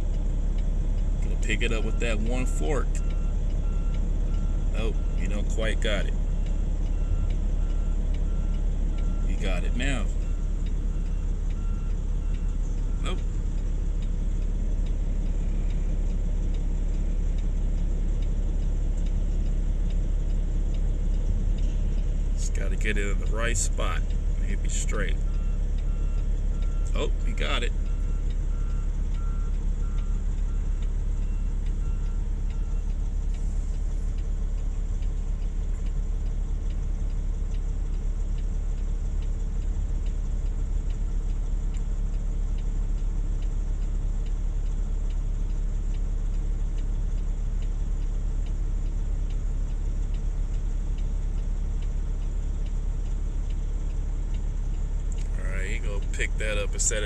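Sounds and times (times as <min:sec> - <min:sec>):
diesel engine idling: 0:00.0 - 0:57.0
backup alarm beeping: 0:01.4 - 0:14.2, 0:22.4 - 0:33.0.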